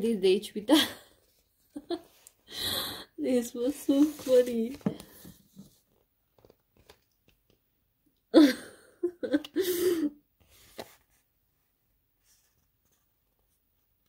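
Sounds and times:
woman laughing: 1.7s - 2.1s, 8.4s - 10.1s.

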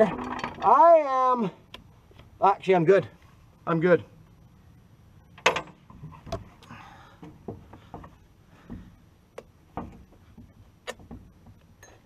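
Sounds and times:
chainsaw chain clicking and knocking: 0.0s - 0.8s.

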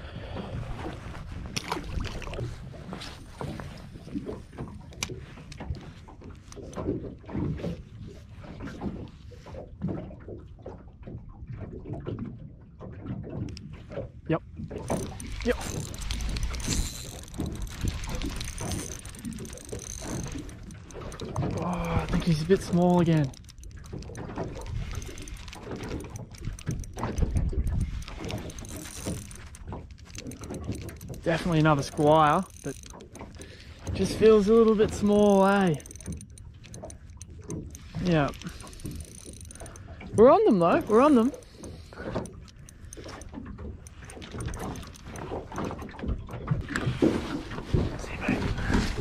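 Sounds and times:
water lapping against boat hull: 0.0s - 49.0s
wind: 0.0s - 49.0s
fishing reel clicking: 14.8s - 46.0s.

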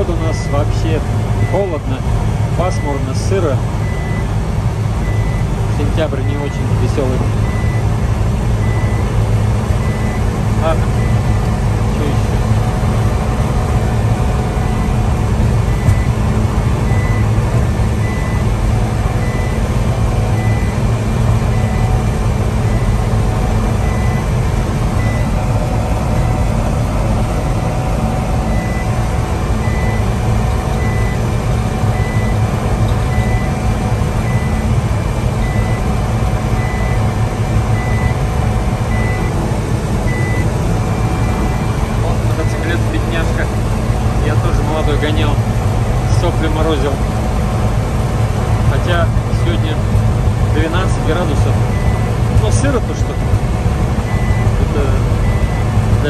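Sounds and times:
engine and road drone: 0.0s - 56.0s.

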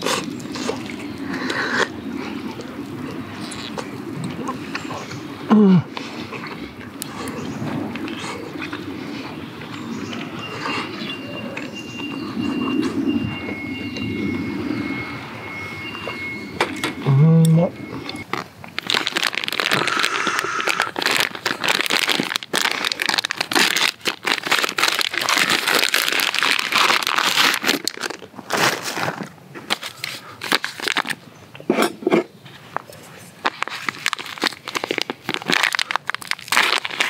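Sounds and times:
plastic packaging crinkling: 18.2s - 31.2s, 33.4s - 37.0s.

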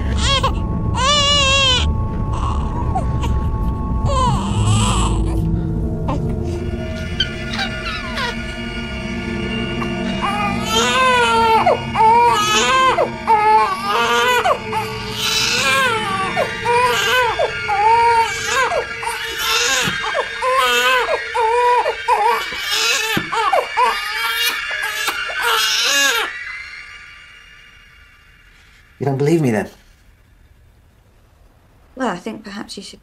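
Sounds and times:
baby crying: 0.0s - 3.4s, 4.1s - 5.5s, 7.0s - 8.5s, 9.8s - 26.3s.

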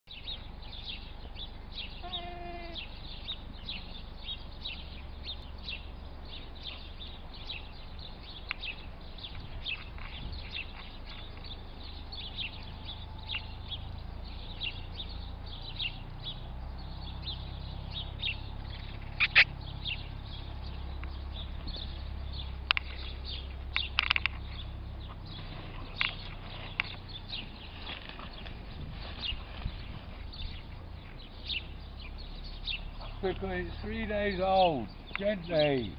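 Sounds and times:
small birds chirping: 0.1s - 35.9s
lamb bleating: 2.0s - 2.9s.

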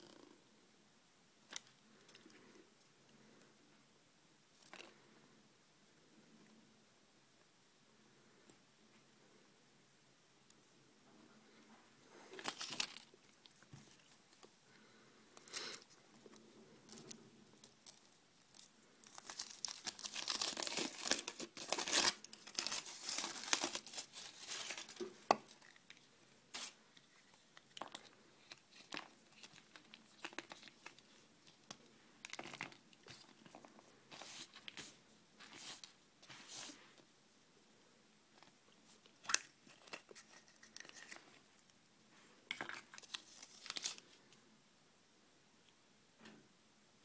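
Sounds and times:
foil wrapper crinkling: 12.4s - 13.2s, 16.9s - 26.8s, 42.6s - 44.1s.

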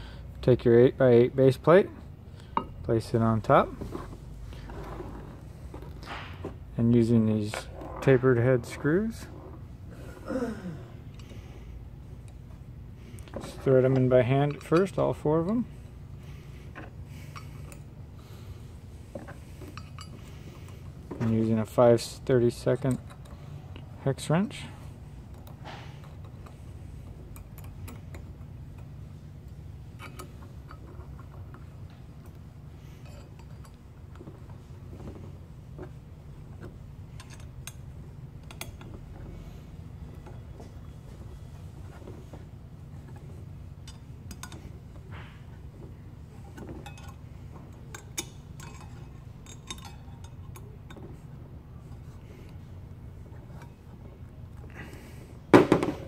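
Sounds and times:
low steady hum: 0.0s - 56.0s
light metallic clicks and clinks: 19.6s - 21.4s, 22.6s - 23.8s, 27.3s - 32.4s, 33.0s - 34.2s, 37.1s - 39.0s, 43.8s - 44.8s, 46.4s - 51.2s.

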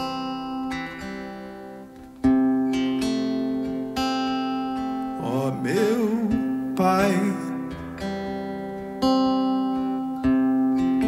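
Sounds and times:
acoustic guitar chords strummed: 0.0s - 11.0s
man singing: 5.2s - 8.1s.

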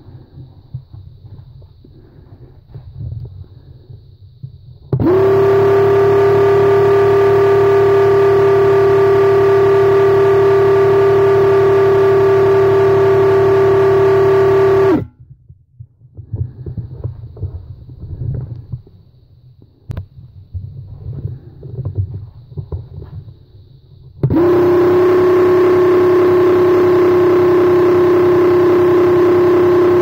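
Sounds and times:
paint sprayer pump buzzing: 4.9s - 15.1s, 24.2s - 30.0s.

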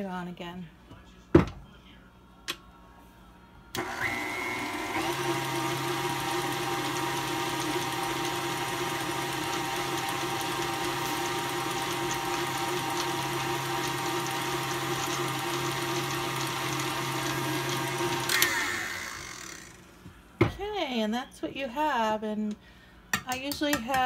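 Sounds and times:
stand mixer running: 3.8s - 19.9s.

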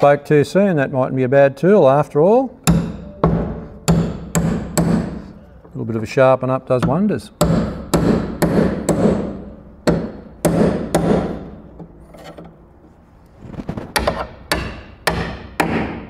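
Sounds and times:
hammer striking metal chisel: 2.6s - 5.3s, 6.8s - 12.5s, 13.9s - 16.0s.

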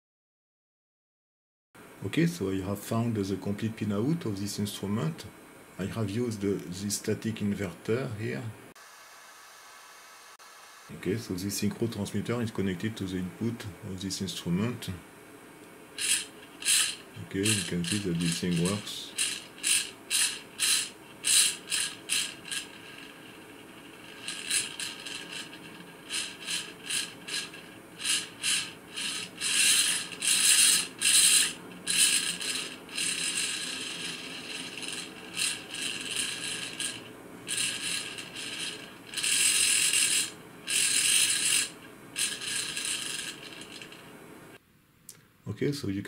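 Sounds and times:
servo motor whirring: 16.0s - 44.0s.

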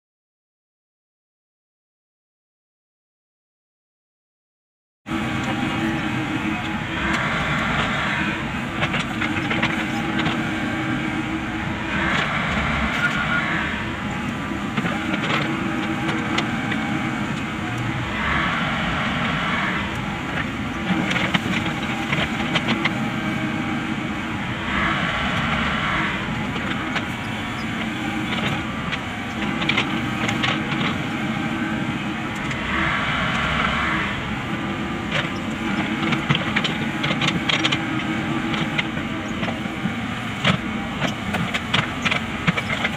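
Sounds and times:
excavator engine and hydraulics: 5.1s - 42.9s.

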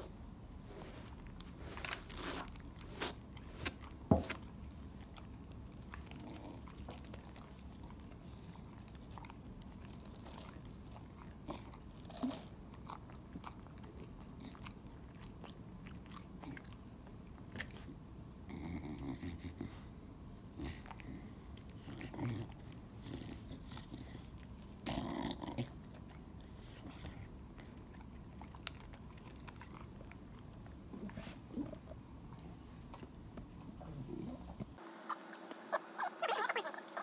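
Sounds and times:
dog chewing crunches: 27.6s - 31.6s.

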